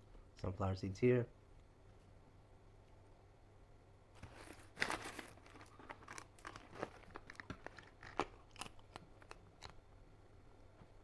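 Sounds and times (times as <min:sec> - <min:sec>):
snack bag crinkling: 0:04.2 - 0:09.8
seeds crunching and cracking: 0:04.7 - 0:09.8.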